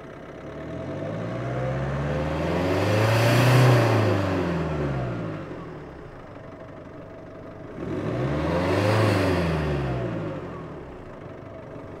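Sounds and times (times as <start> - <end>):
car engine revving: 0.8 - 5.4, 7.8 - 10.4.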